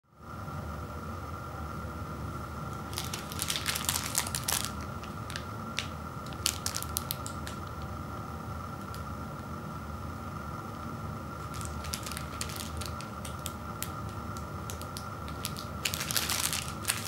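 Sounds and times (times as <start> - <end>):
low background hum: 0.0 - 17.0
plastic wrapper crinkling: 2.8 - 7.8, 11.4 - 17.0.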